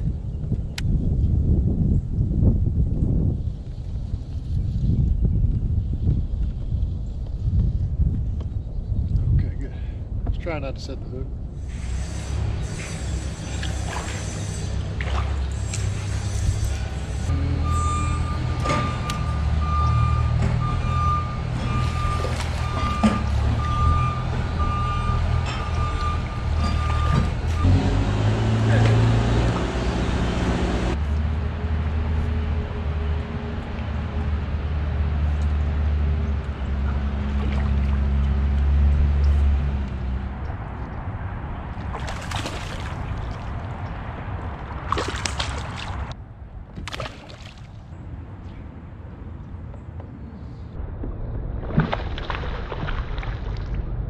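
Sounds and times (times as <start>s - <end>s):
water splashing beside kayak: 13.6s - 16.0s, 21.7s - 23.4s, 36.9s - 39.3s, 41.8s - 44.0s, 44.7s - 46.2s, 46.8s - 47.9s
reversing alarm beeping: 17.3s - 28.0s.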